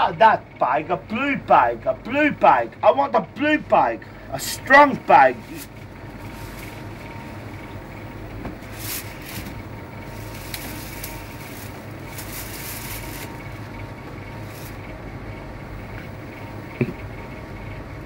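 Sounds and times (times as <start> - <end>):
steady low hum: 0.0 - 18.0
plastic bag rustling: 5.4 - 7.6, 8.5 - 14.9.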